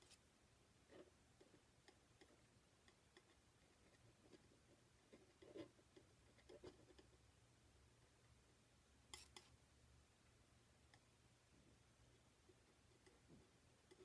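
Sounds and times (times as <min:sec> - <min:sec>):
low room hum: 0:00.0 - 0:14.0
palette knife tapping and scraping: 0:09.1 - 0:09.6, 0:12.5 - 0:14.0.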